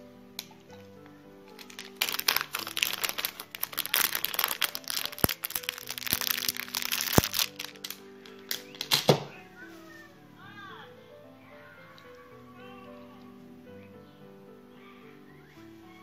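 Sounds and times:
soft background music: 0.0 - 16.0
plastic packet crinkling: 1.5 - 9.2.

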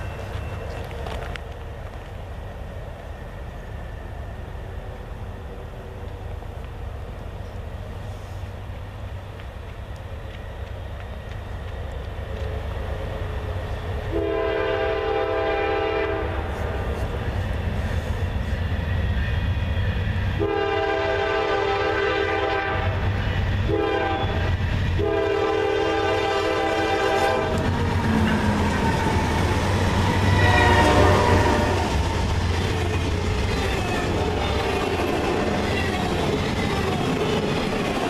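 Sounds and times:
diesel locomotive engine rumble: 0.0 - 38.0
train wheel noise: 0.0 - 38.0
train air horn blasts: 14.1 - 17.0, 20.4 - 27.6, 30.2 - 32.0.

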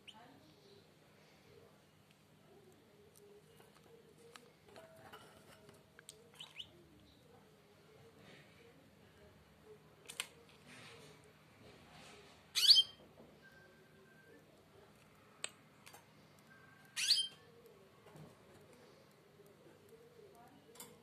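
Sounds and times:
nestlings begging calls: 17.0 - 17.3.

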